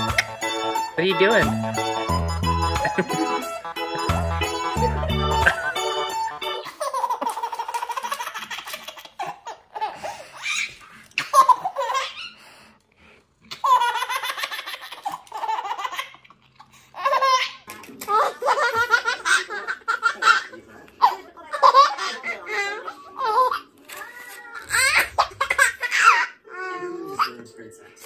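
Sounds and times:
baby laughing: 2.6 - 12.4, 13.5 - 16.4, 17.0 - 27.4.

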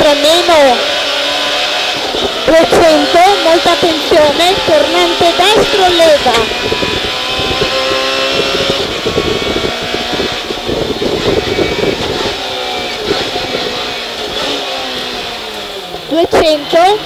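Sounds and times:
car engine at high revs: 0.0 - 17.0.

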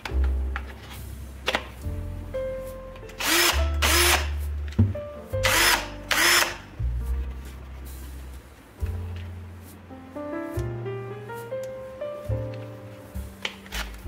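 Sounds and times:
background music: 0.0 - 14.0
cordless drill motor spinning: 3.2 - 4.2, 5.5 - 6.5.

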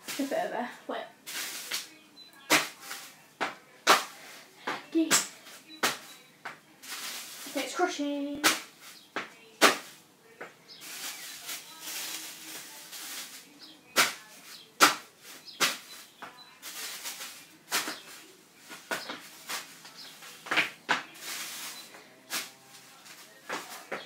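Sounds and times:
plastic bag rustling: 1.2 - 1.9, 6.8 - 7.9, 10.7 - 24.0.

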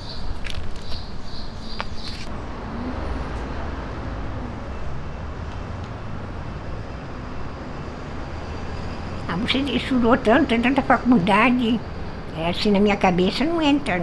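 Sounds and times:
high chirping pulses: 0.0 - 2.3
road traffic rumble: 0.0 - 14.0.

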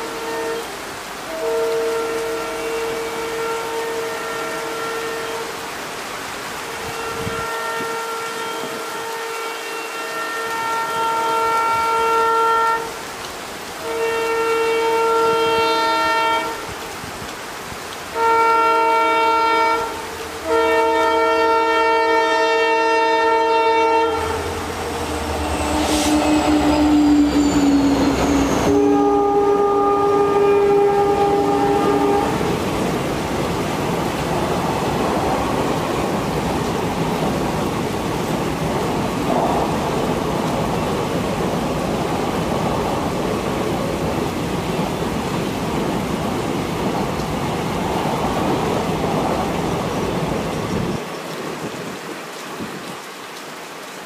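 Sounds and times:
locomotive air horn blasts: 0.0 - 5.7, 6.6 - 13.1, 13.7 - 16.9, 18.1 - 32.7
heavy rain: 0.0 - 54.0
locomotive rumbling past: 19.2 - 51.0
train coaches rushing and rail clatter: 20.6 - 51.0.

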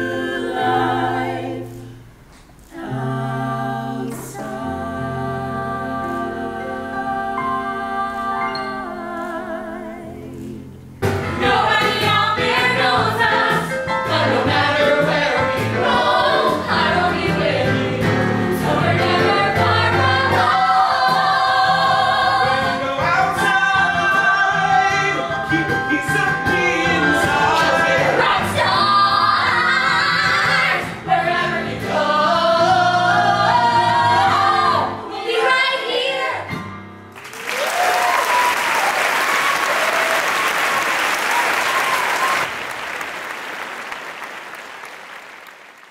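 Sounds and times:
group singing musical theatre song: 0.0 - 36.8
keyboard accompaniment: 2.8 - 35.1.

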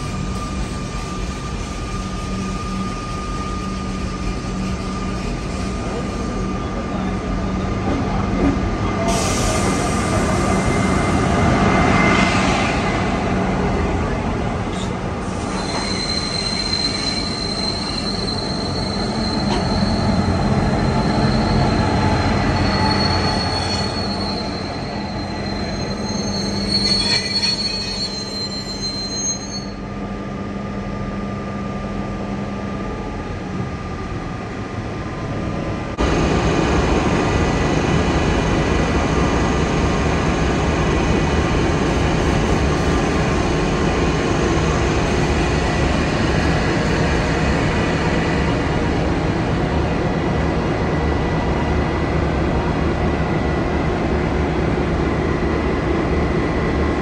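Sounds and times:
high wheel squeal: 15.3 - 29.8.

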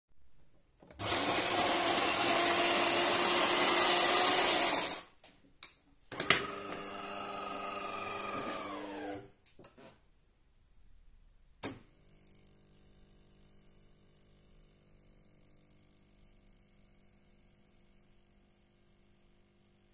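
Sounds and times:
coffee grinder milling beans: 0.9 - 5.1, 6.3 - 9.3
motor humming: 1.0 - 5.0, 6.4 - 9.3.

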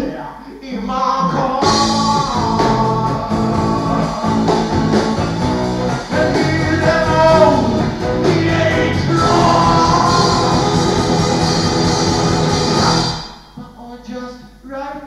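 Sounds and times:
person singing: 0.5 - 15.0
rock and roll guitar: 1.6 - 13.5.

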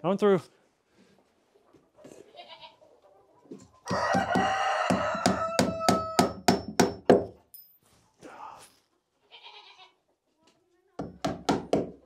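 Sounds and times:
rooster crowing: 3.8 - 6.4
hammer blows on wood: 3.9 - 7.3.

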